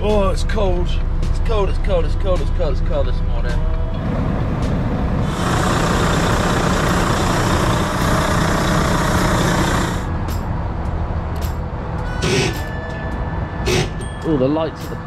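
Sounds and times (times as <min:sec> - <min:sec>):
diesel engine idling: 0:00.0 - 0:12.7
loud air hiss: 0:05.2 - 0:10.1, 0:12.2 - 0:12.7, 0:13.6 - 0:14.0.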